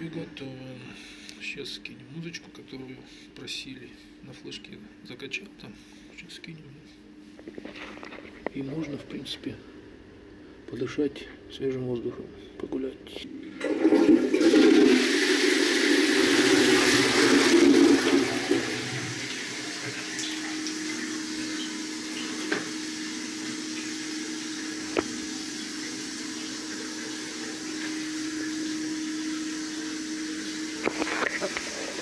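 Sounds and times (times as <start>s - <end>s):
steady low hum: 0.0s - 32.0s
water rushing: 13.7s - 32.0s.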